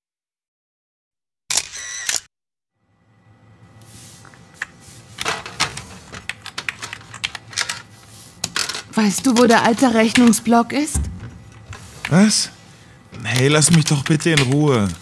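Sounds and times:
computer keyboard typing and clicking: 6.2 - 7.8.

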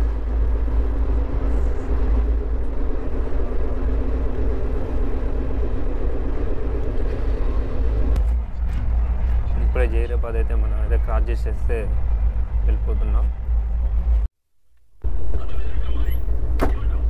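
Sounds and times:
train rumbling on track: 0.0 - 14.3, 15.0 - 17.0.

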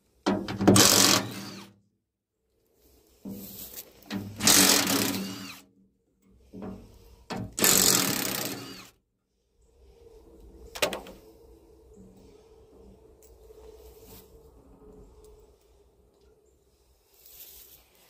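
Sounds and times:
cordless drill spinning bolts: 0.6 - 1.7, 4.1 - 5.6, 7.4 - 8.9.

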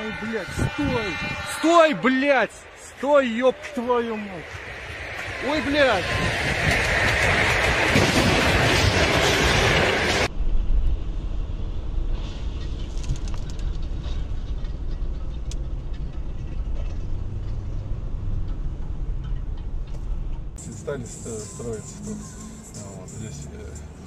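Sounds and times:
loud rushing noise: 0.0 - 13.0
car road and engine rumble: 10.2 - 24.0.

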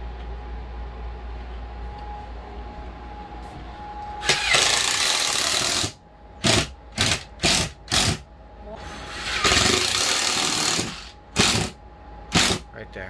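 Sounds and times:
cordless drill driving screw: 4.2 - 8.2.

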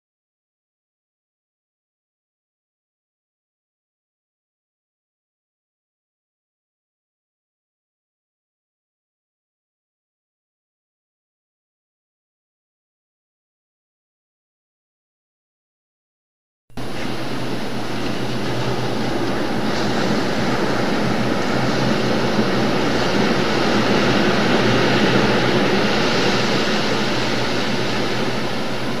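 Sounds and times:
boat engine drone: 16.8 - 29.0
sea hiss: 16.8 - 29.0
wind: 16.8 - 29.0.

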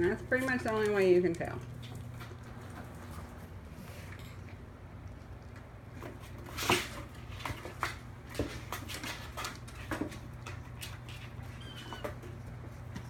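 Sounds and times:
paws tapping and scratching cardboard: 5.9 - 13.0.

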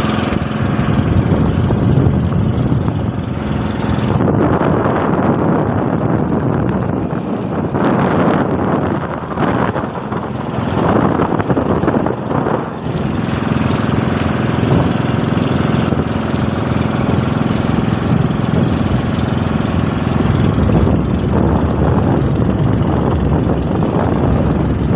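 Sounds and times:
boat engine running: 0.0 - 24.9
wind buffeting microphone: 0.0 - 24.9.

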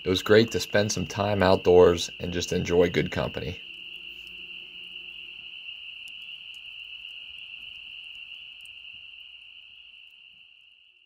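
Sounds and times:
high-pitched insect trill: 0.0 - 11.0
campfire pops: 2.9 - 10.5.

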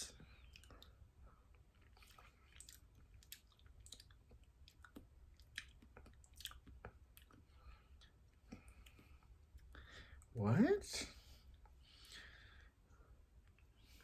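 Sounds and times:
faint chewing mouth clicks: 0.2 - 10.3.

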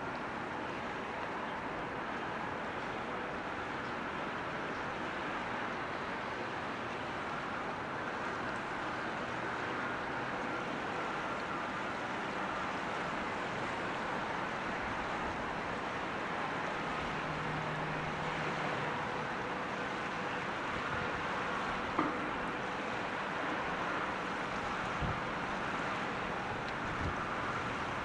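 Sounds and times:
rushing outdoor background noise: 0.0 - 28.0.

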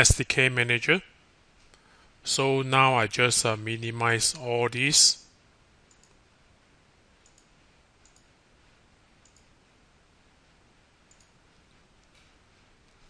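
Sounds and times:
computer mouse clicks: 5.9 - 6.2, 7.2 - 8.3, 9.2 - 9.5, 11.1 - 11.4.

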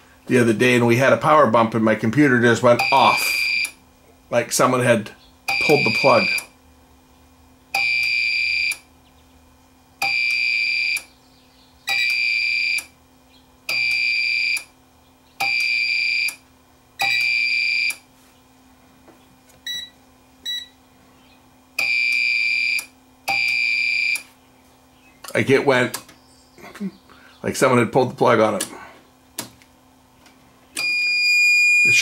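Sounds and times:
high-pitched alarm beeps: 2.8 - 3.8, 5.5 - 6.5, 7.8 - 8.8, 10.0 - 11.1, 13.7 - 14.7, 15.4 - 16.4, 19.7 - 20.8, 21.8 - 24.2, 30.8 - 32.0.

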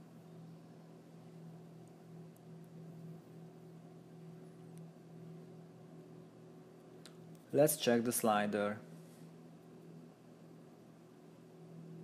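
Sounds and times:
low electrical hum with hiss: 0.0 - 12.0.

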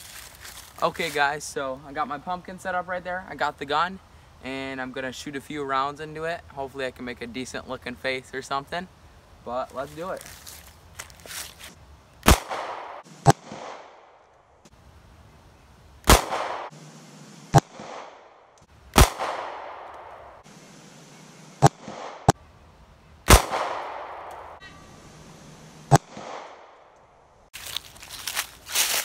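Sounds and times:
pistol shots with echo: 12.2 - 14.0, 16.1 - 16.7, 19.0 - 19.9, 23.3 - 24.5, 25.9 - 26.8.

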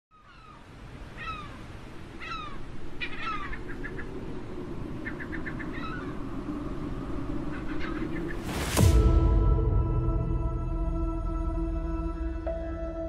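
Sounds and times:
seagulls calling: 0.1 - 6.6, 7.2 - 8.5
low rumble of ambience: 3.6 - 13.0.

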